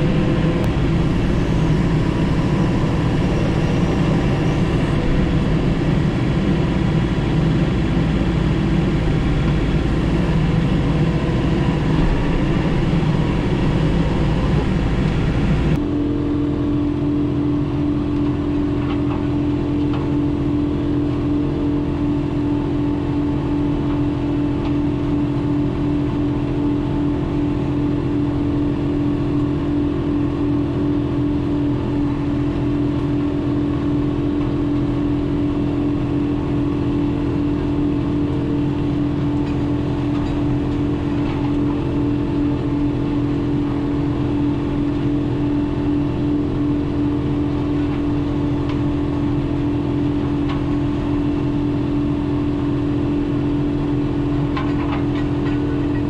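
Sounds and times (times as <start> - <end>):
tractor diesel engine: 0.0 - 56.0.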